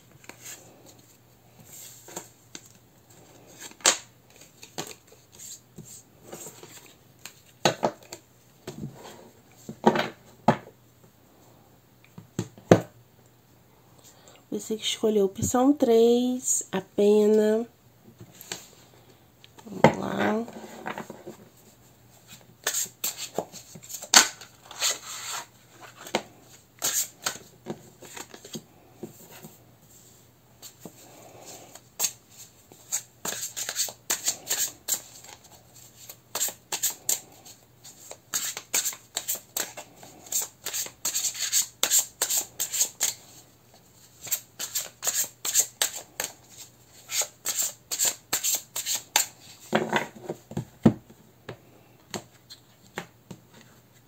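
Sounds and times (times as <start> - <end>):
cards being shuffled: 32.0 - 43.2, 44.2 - 49.3.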